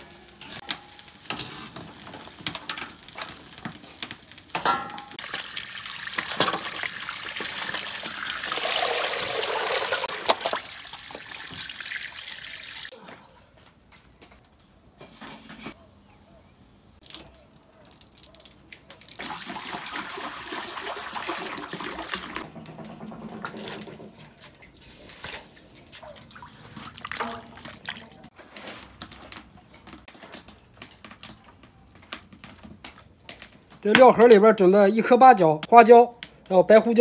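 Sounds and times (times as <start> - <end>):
water pouring into wok: 5.2 - 12.9, 19.2 - 25.4
knocks and clatter: 22.4 - 24.5.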